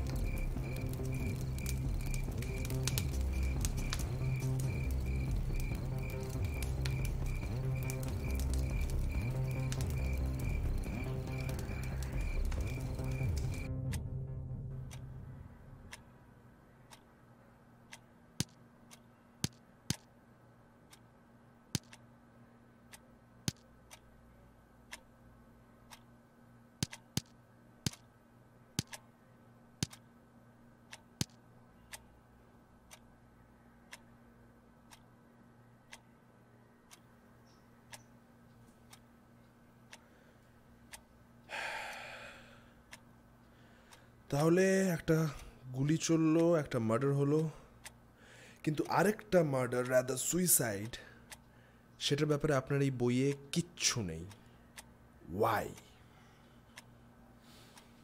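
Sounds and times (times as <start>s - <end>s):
wall clock ticking: 0.0s - 13.7s, 16.8s - 17.2s, 21.8s - 22.1s, 24.8s - 25.2s, 25.8s - 26.2s, 26.8s - 28.1s, 28.8s - 29.1s, 29.8s - 30.1s, 30.8s - 32.2s, 32.8s - 33.2s, 33.8s - 34.2s, 34.8s - 35.2s, 35.8s - 36.2s, 36.8s - 37.1s, 39.8s - 40.1s, 42.8s - 48.0s, 48.6s - 56.0s
steady low hum: 0.0s - 58.0s
breathy sound: 41.5s - 42.8s, 47.6s - 48.6s.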